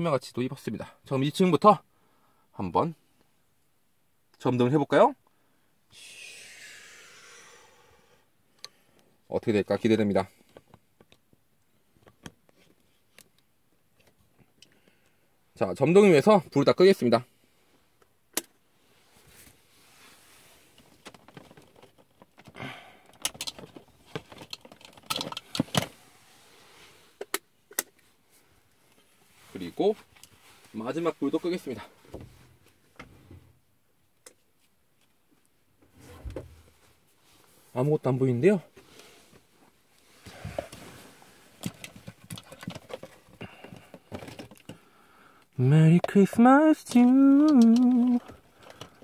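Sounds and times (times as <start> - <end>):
soft rustling: 18.8 - 22.3, 28.0 - 33.0, 38.7 - 43.4
rustling and clattering handling: 19.1 - 27.3, 38.7 - 44.9.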